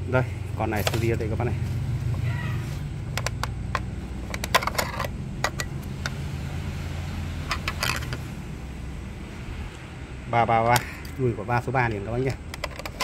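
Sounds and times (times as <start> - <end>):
steady low hum: 0.0 - 13.0
plastic clicks and rattles: 3.1 - 6.2, 7.4 - 8.2, 12.3 - 13.0.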